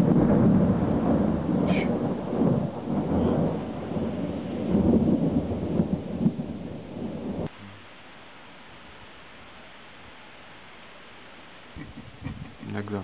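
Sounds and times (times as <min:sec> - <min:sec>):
thunder rumbling: 0:00.0 - 0:07.8
faint steady hiss: 0:07.4 - 0:13.0.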